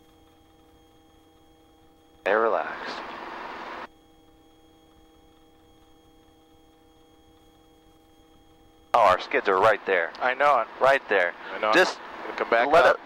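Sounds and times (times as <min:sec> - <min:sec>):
faint electrical hum: 0:00.0 - 0:13.0
headset intercom hiss: 0:02.3 - 0:03.9, 0:09.0 - 0:13.0.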